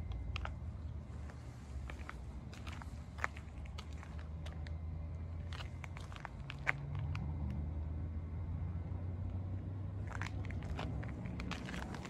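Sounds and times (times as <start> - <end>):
low mechanical hum: 0.0 - 12.0
footsteps on concrete: 0.4 - 4.6.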